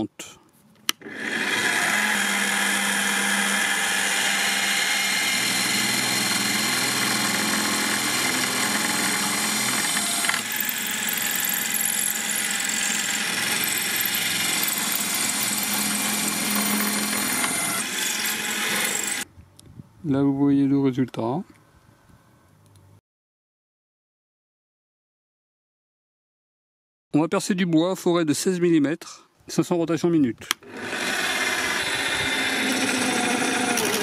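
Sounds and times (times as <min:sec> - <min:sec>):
drill bit cutting metal: 0:01.0 - 0:19.2, 0:30.6 - 0:34.0
drill motor hum and whine: 0:01.0 - 0:19.2, 0:30.6 - 0:34.0.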